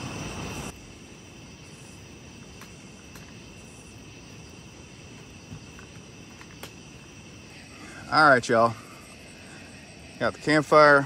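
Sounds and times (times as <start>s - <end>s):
crickets and insects trilling: 0.0s - 11.0s
campfire pops: 2.4s - 3.6s, 5.1s - 7.2s.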